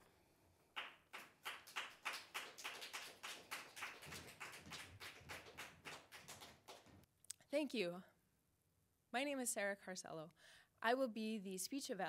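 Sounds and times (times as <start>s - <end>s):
people clapping: 0.7s - 7.0s.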